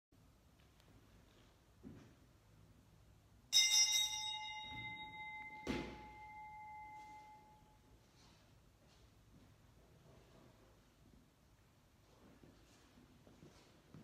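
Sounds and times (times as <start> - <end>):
small bell ringing: 3.5 - 7.9.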